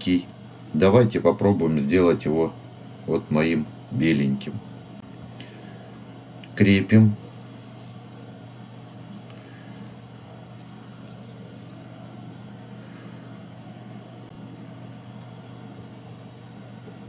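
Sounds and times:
low electrical hum: 0.0s - 17.0s
fingers rustling thread: 7.5s - 17.0s.

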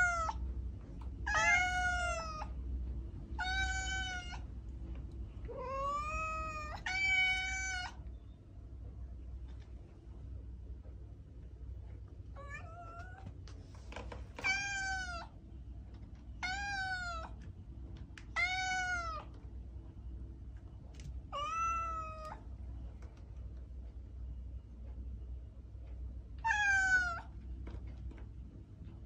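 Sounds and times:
cat meowing: 0.0s - 0.4s, 1.2s - 2.5s, 3.4s - 4.5s, 5.5s - 8.0s, 12.4s - 13.2s, 14.4s - 15.4s, 16.4s - 17.4s, 18.3s - 19.3s, 21.3s - 22.4s, 26.4s - 27.3s.

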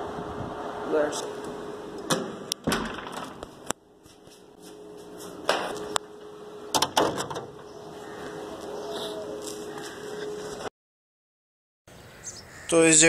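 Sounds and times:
faint steady hum: 3.4s - 10.7s
door and gate bolt clicks: 6.7s - 7.5s.

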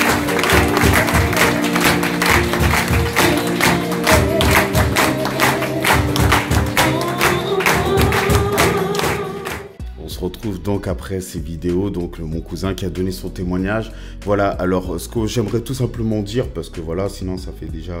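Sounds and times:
people clapping along: 0.0s - 9.8s
music with steady beat: 0.0s - 18.0s.

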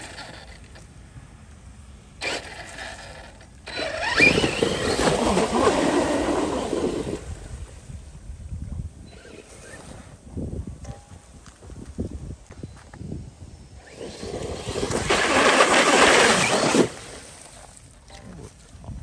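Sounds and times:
electric motor whining: 2.2s - 7.6s, 13.8s - 17.2s
tyres churning water: 2.2s - 7.7s, 13.9s - 18.0s.

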